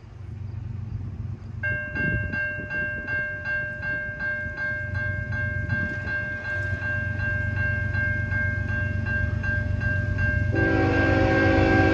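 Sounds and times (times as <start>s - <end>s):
electronic crossing bell ringing: 1.6s - 10.8s.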